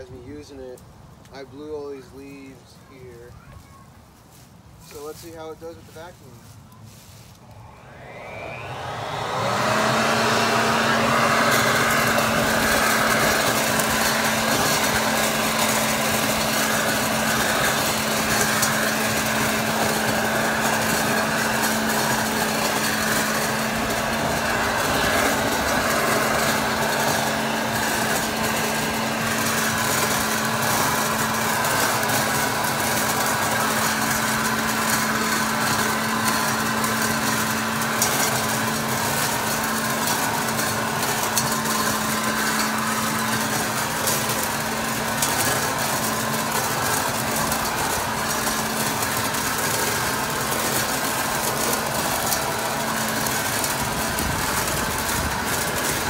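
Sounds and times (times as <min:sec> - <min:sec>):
light ticks of leaves: 0:00.2 - 0:07.7
leaf blower vacuum whine: 0:04.3 - 0:56.0.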